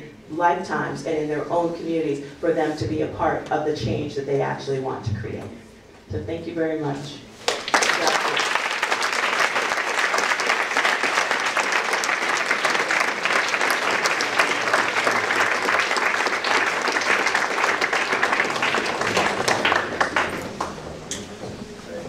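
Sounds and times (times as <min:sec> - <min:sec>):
audience applauding: 0:07.4 - 0:21.5.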